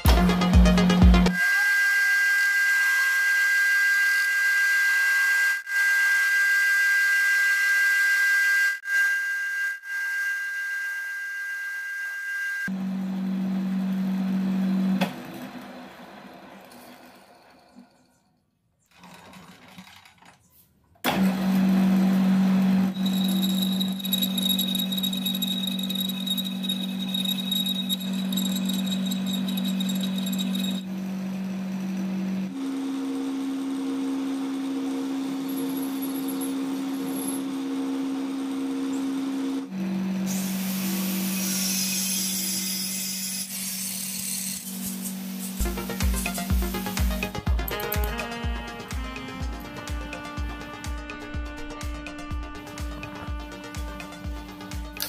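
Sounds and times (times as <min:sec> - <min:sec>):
metal lathe humming: 0:21.6 - 0:30.9
lathe cutting tool squealing: 0:22.9 - 0:30.9, 0:35.2 - 0:37.5, 0:41.2 - 0:48.2
hiss: 0:40.3 - 0:47.2.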